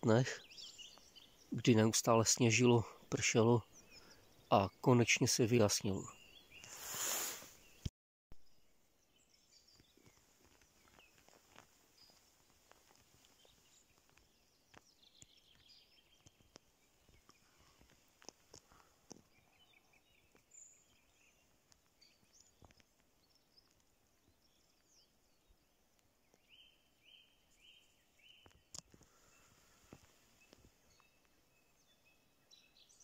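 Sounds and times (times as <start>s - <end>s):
songbird chirps and trills: 0.0s - 33.0s
faint clicks: 9.8s - 19.3s.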